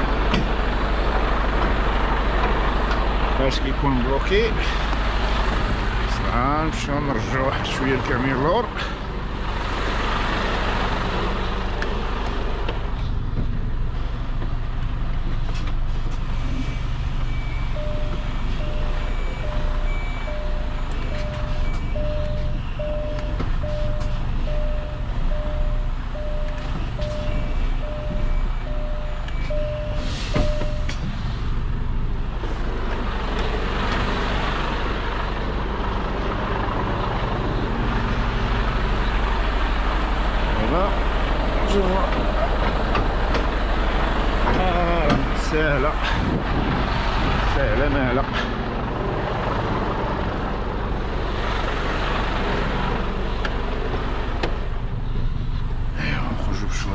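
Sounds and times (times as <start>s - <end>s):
truck diesel engine running: 0.0s - 56.9s
short electronic beeps: 16.5s - 31.0s.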